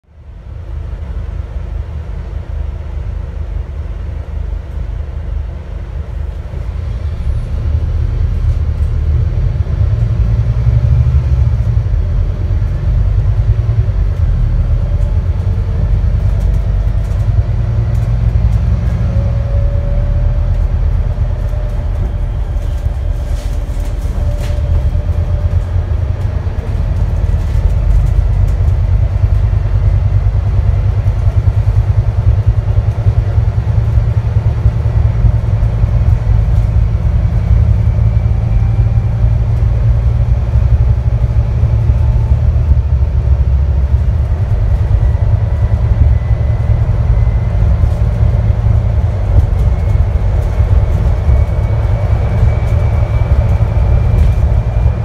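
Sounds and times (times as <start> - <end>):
bus diesel engine drone: 0.0 - 55.0.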